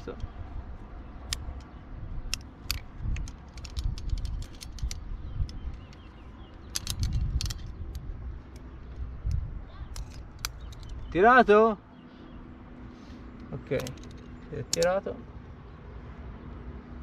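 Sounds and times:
carabiners clicking and clinking: 1.2s - 11.6s, 13.3s - 15.2s.

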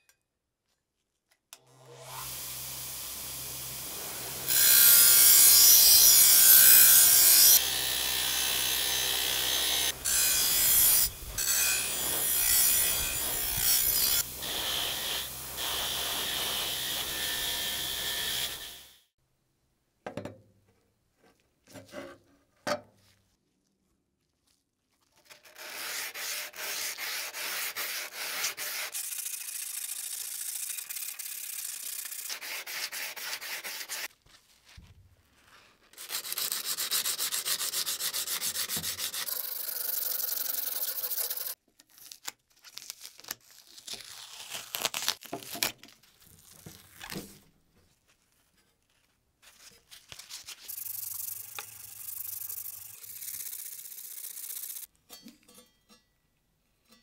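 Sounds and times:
sanding metal blade by hand: 3.8s - 7.6s, 9.3s - 18.8s, 25.3s - 34.1s, 36.0s - 41.6s, 50.6s - 54.9s.

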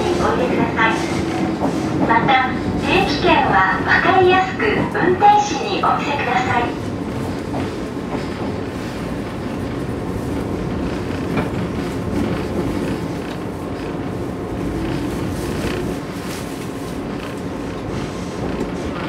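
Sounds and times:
train wheels and motors rumbling: 0.0s - 19.0s
rail joint clack: 7.1s - 16.0s.

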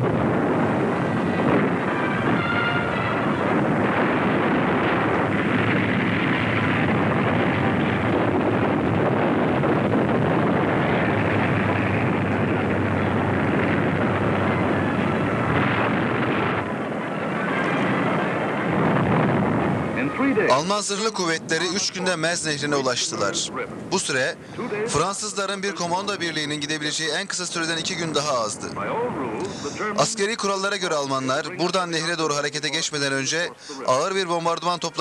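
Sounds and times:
heavy engines rumbling: 0.0s - 20.6s, 28.6s - 30.5s.

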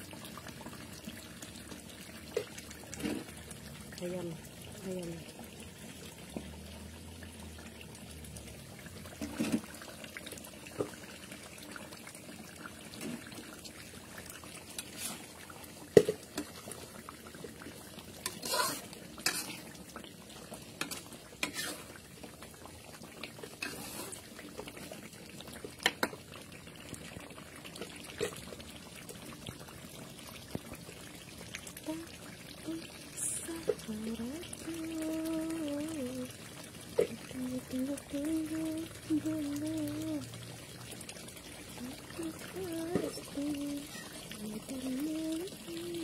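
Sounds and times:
sauce simmering in a wok: 0.0s - 46.0s
metal spatula scraping a wok: 18.2s - 19.7s, 20.8s - 22.0s, 23.6s - 24.2s.

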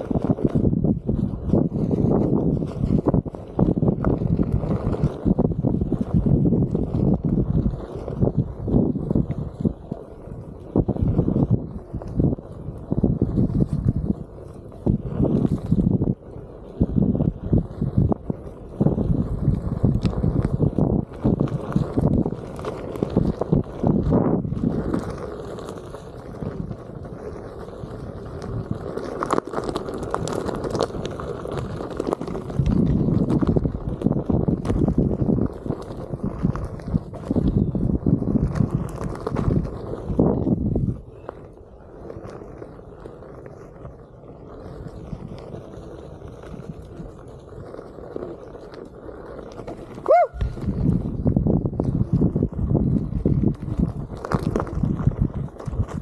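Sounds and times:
wheel rolling over dirt trail: 0.0s - 56.0s.

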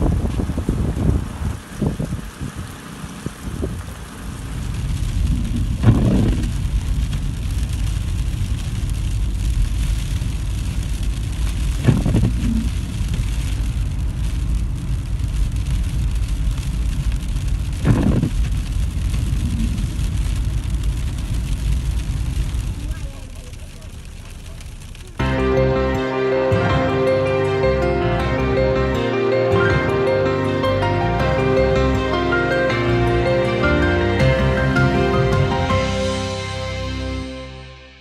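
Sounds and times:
car engine and tyre rumble: 0.0s - 25.8s.

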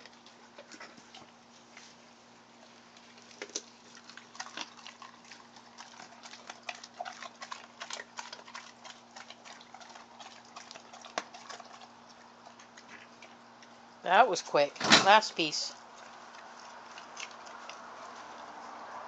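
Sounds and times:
dog chewing crunching bones: 2.6s - 13.9s, 15.8s - 18.6s.

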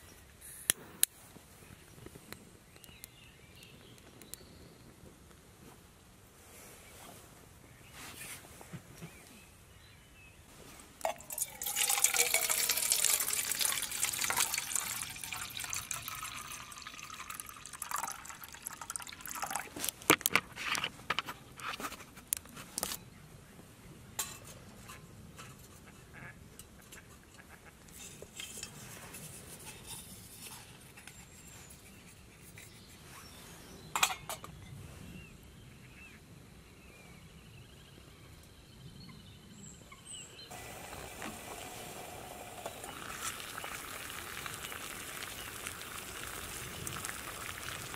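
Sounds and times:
water pouring into metal pot: 11.0s - 20.8s, 40.5s - 47.9s.

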